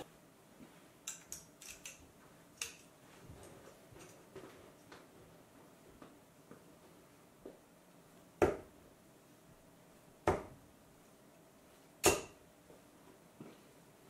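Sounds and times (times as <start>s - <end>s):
darts thudding into dartboard: 12.0s - 12.4s.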